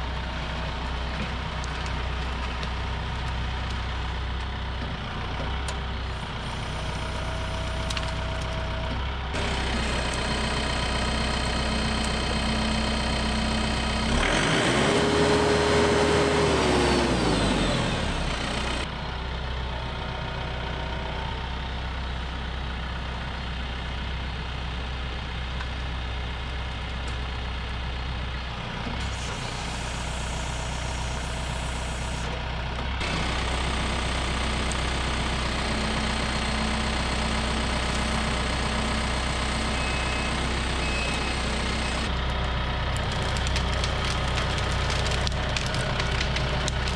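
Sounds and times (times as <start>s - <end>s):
tractor diesel engine revving: 9.3s - 18.9s, 29.0s - 46.9s.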